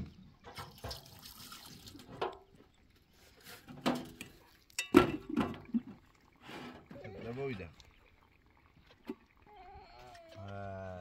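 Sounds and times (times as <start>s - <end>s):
metal pots clanking on sink: 0.4s - 1.2s, 3.6s - 6.0s
tap water running into sink: 0.5s - 2.4s.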